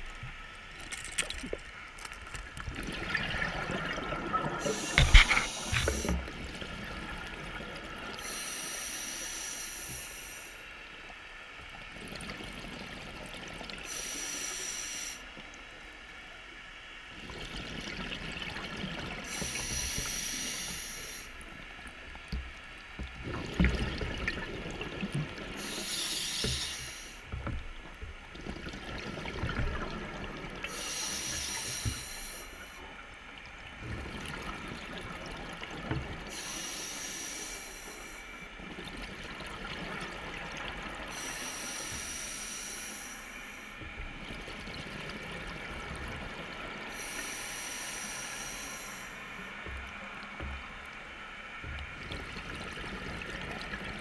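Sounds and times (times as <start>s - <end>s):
faint steady hum: 0.0s - 54.0s
exhaled bubbles underwater: 2.6s - 8.4s, 23.0s - 27.6s, 28.2s - 32.4s.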